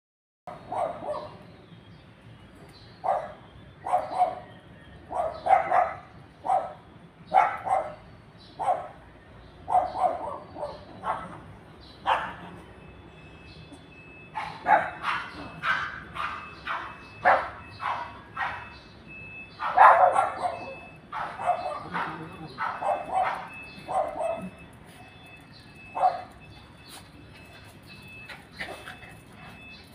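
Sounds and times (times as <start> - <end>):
small dogs yapping: 19.6 - 24.6.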